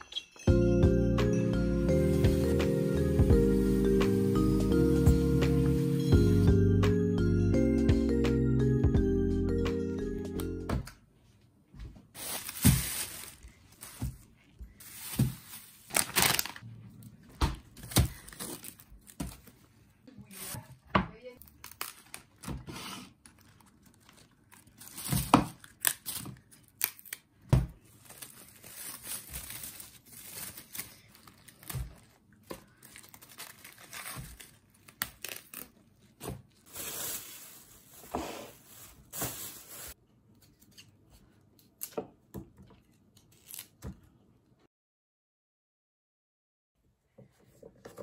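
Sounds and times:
leaves rustling: 0:12.2 - 0:14.0
cling film crinkling: 0:14.8 - 0:16.6, 0:23.2 - 0:27.2, 0:27.9 - 0:35.8.

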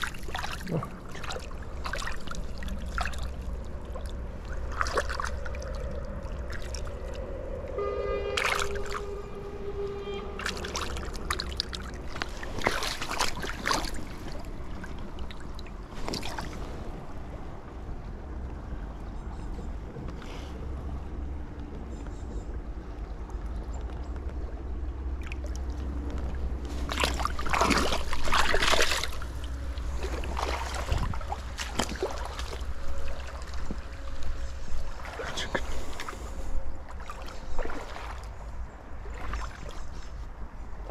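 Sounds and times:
water splashing around hands: 0:00.0 - 0:07.2, 0:08.4 - 0:09.3, 0:10.4 - 0:17.0, 0:25.2 - 0:36.3, 0:36.9 - 0:40.1
steady low rumble: 0:00.0 - 0:40.9.

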